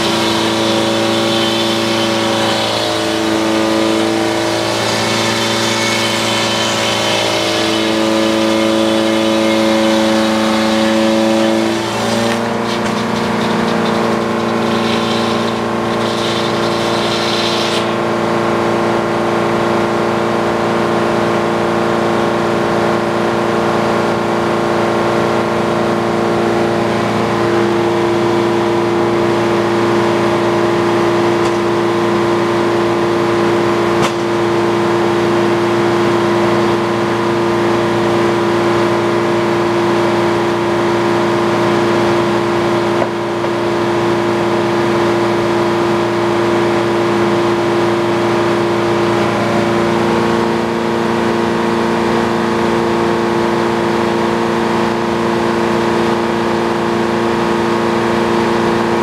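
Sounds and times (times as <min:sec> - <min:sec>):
circular saw spinning: 0:00.0 - 0:18.6
mill engine running: 0:00.0 - 0:19.0.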